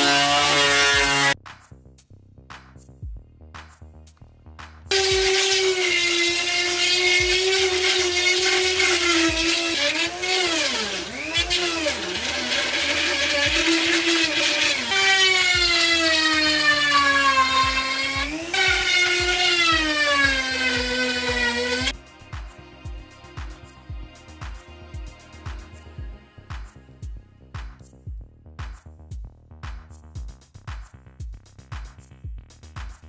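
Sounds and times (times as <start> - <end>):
rotary tool grinding chipboard: 0.0 - 1.4, 4.9 - 21.9.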